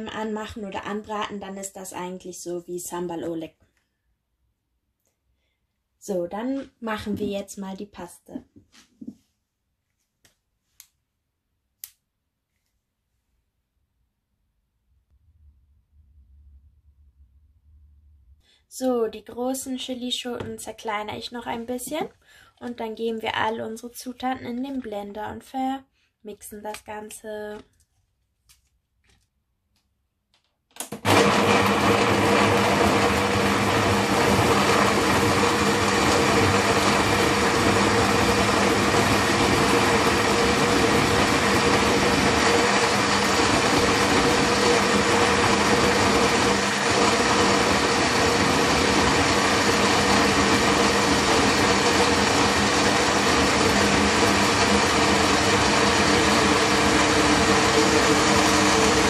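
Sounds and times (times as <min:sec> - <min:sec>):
blender running: 0:30.8 - 0:59.0.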